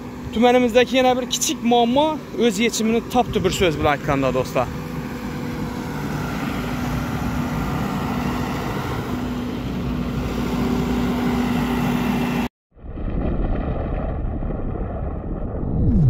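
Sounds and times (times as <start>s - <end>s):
road roller diesel engine running: 0.0s - 12.5s.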